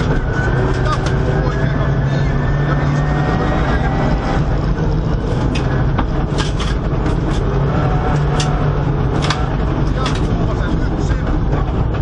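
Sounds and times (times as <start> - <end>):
car engine droning: 0.0 - 12.0
tyre and road noise: 0.0 - 12.0
sharp clicks and knocks: 5.0 - 12.0.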